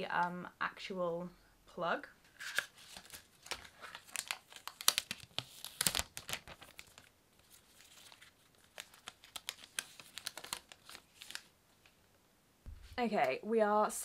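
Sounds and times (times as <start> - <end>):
plastic wrapping crackling and tearing: 2.4 - 11.5.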